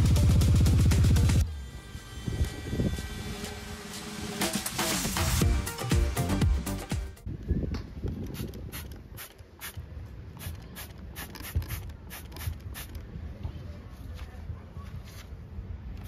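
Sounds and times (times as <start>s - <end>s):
spray bottle squirting: 8.3s - 9.8s, 10.4s - 13.0s.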